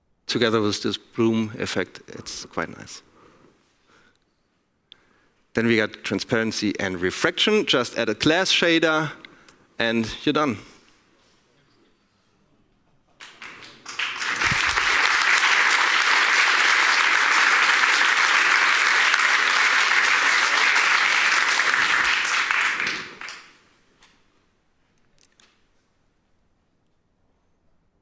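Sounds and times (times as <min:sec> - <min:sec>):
audience applauding: 0:13.2 - 0:23.6.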